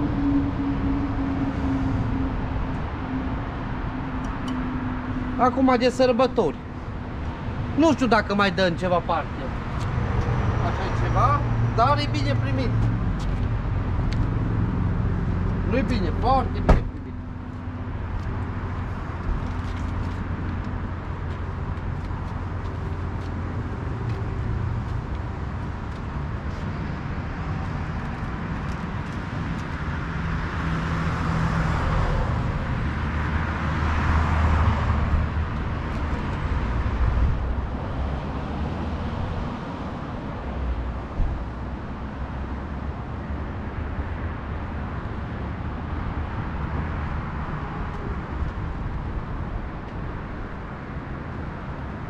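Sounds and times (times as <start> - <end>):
motor traffic rumble: 0.0 - 52.0
vehicle passing by: 8.9 - 19.1, 29.2 - 40.1.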